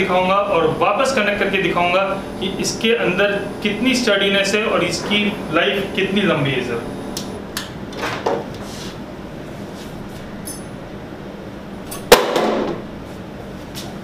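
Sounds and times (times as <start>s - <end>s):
machine crashing onto floor: 12.1s - 12.8s.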